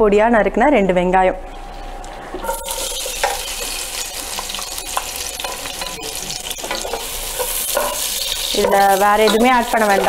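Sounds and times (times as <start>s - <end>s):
onions sizzling in oil: 2.4s - 10.0s.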